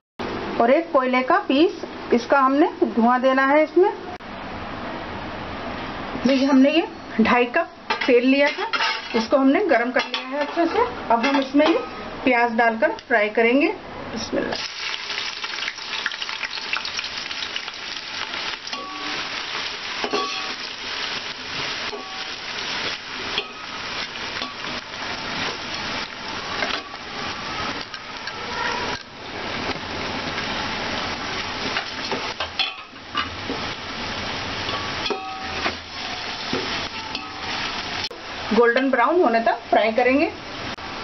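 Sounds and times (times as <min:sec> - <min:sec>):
onions sizzling in oil: 0:14.5 - 0:41.0.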